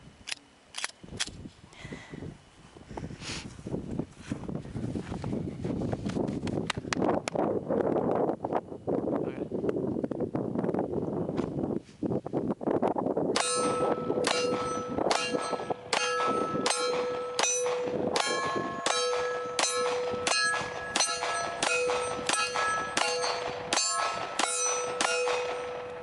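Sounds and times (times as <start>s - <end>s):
metallic ringing: 13.4s - 26.0s
pistol shots: 13.4s - 26.0s.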